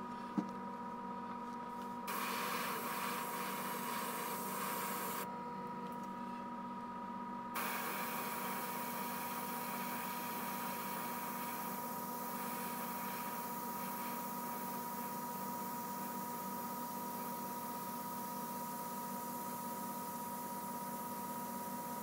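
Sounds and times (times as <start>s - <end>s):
steady hum: 2.0s - 5.3s, 7.6s - 18.8s
airbrush spraying hiss: 2.1s - 5.2s, 7.6s - 18.0s.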